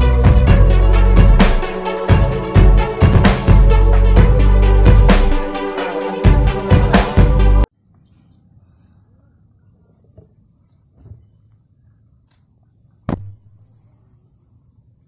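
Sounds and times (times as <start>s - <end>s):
electronic music: 0.0s - 7.7s.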